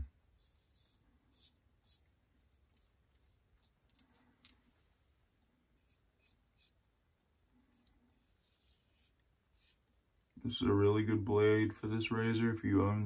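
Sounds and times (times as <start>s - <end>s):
razor scraping stubble: 0.2s - 4.1s, 5.7s - 6.9s, 7.8s - 10.0s.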